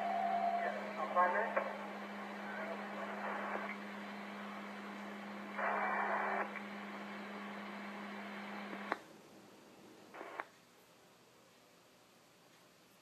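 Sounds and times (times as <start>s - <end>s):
radio static hiss: 0.0s - 10.6s
steady hum: 0.0s - 12.9s
radio click: 0.6s - 9.1s, 10.2s - 10.6s.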